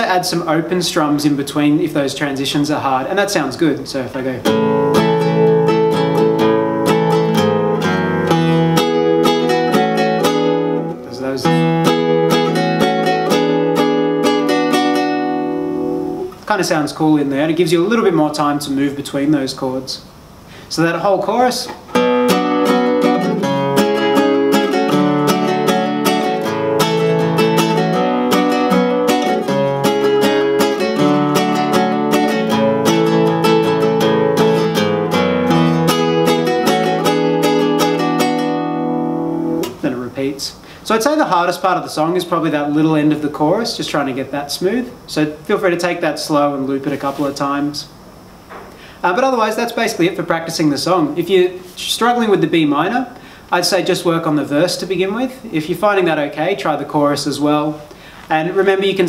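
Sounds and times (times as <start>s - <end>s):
nylon-string guitar strumming: 0.0s - 16.4s, 21.6s - 40.3s.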